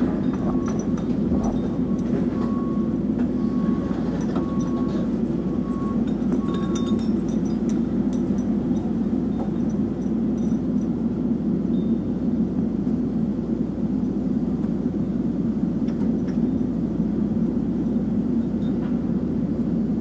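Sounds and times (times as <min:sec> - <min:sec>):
excavator engine running: 0:00.0 - 0:20.0
metallic clinks of lifting chain: 0:06.0 - 0:11.0.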